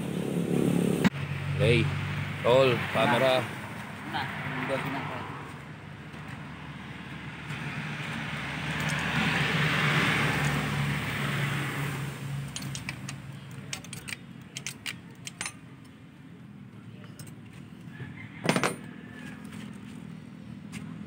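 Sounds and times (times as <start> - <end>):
motor vehicle passing: 0.0 - 14.0.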